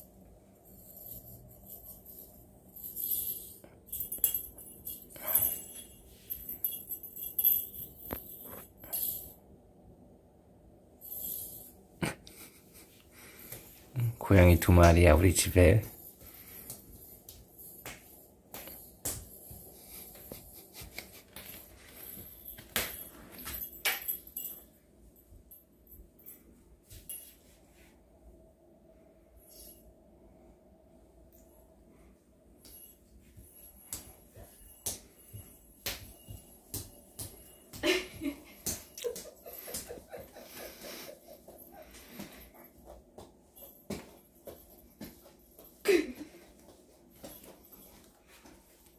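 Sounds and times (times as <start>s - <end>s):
hands slapping floor: 16.6s - 21.6s, 33.8s - 40.1s.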